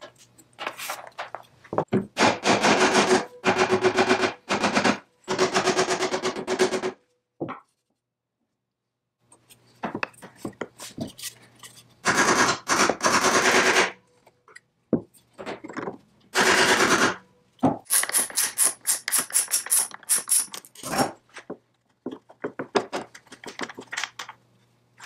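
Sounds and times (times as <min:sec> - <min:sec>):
ratchet wrench clicking: 0:17.9 - 0:20.7.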